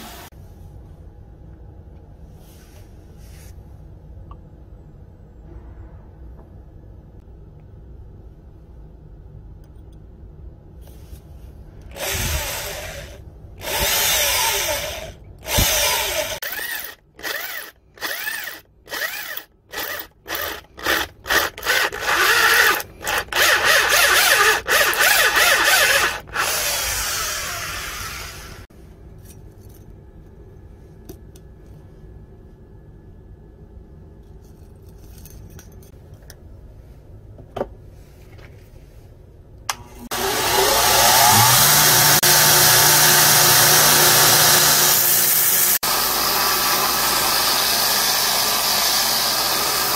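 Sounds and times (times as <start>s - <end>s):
power drill cutting through steel: 0.0s - 0.3s, 11.9s - 28.7s, 40.0s - 49.9s.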